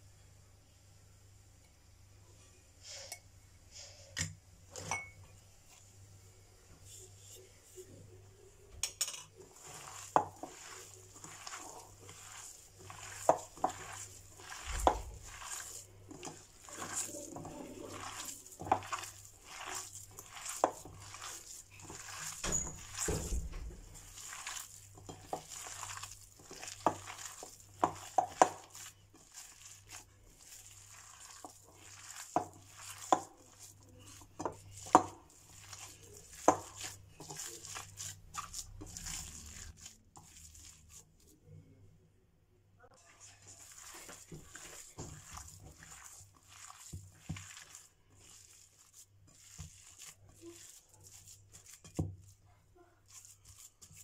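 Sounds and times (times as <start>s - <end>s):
minced meat squishing: 9.3s - 41.4s, 43.0s - 54.0s.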